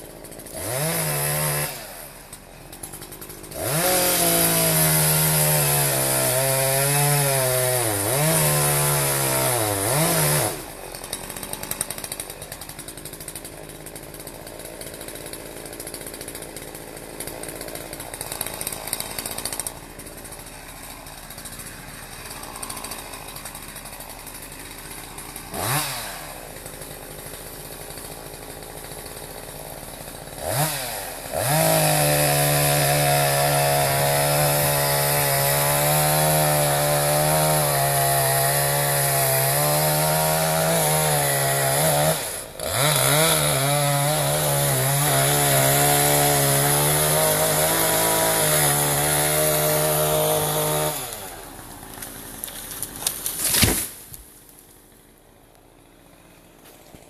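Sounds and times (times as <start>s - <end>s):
chainsaw revving and cutting: 0.0s - 57.0s
tree crashing down: 51.9s - 54.7s.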